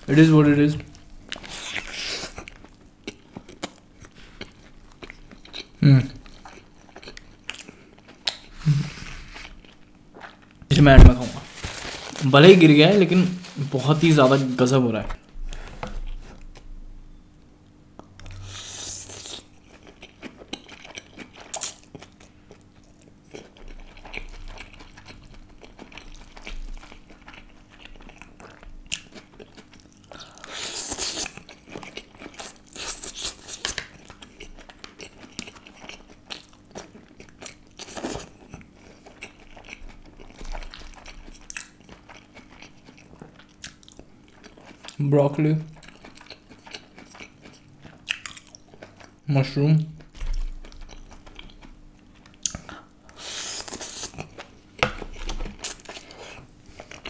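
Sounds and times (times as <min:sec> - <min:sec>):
chewing noodles: 0:18.2 - 0:45.0, 0:45.7 - 0:49.2.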